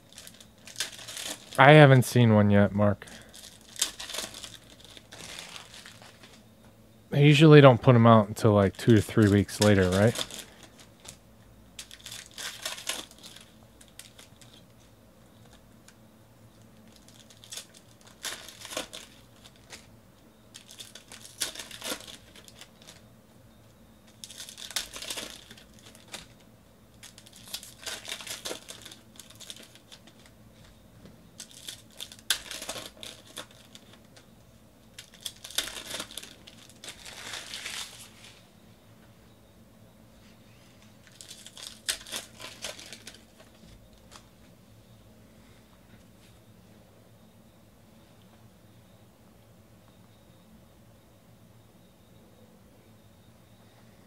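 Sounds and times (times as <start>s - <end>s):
card wrappers crinkling and tearing: 0.0s - 1.7s, 3.0s - 6.4s, 8.6s - 11.2s, 11.8s - 14.6s, 16.7s - 19.9s, 20.5s - 23.0s, 24.1s - 30.4s, 31.4s - 34.3s, 34.9s - 38.4s, 41.0s - 44.3s.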